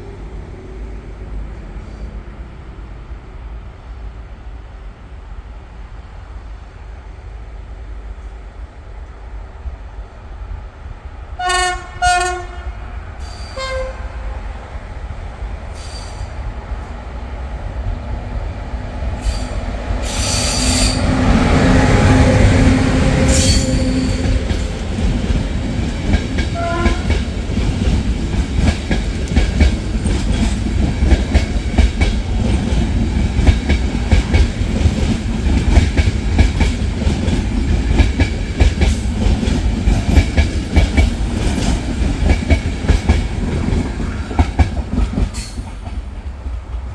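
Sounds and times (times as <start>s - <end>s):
train rumbling past: 0.0s - 46.9s
train horn blasts: 11.4s - 14.3s, 20.6s - 24.8s, 26.5s - 27.2s.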